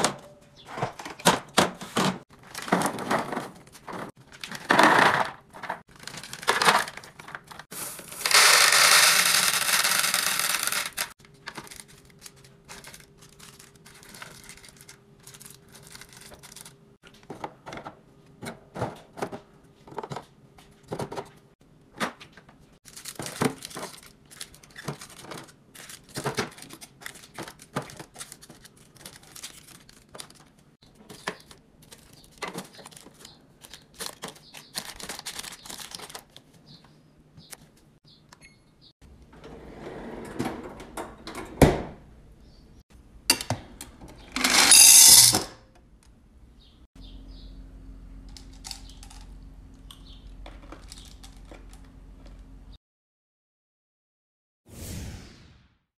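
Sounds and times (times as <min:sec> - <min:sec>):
packaging clicking on plastic: 0:31.1 - 0:36.4
loud rattle: 0:44.4 - 0:45.5.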